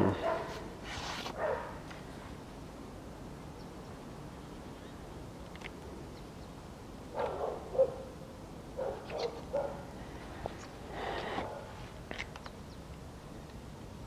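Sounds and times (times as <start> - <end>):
puppy yipping: 8.8 - 9.8.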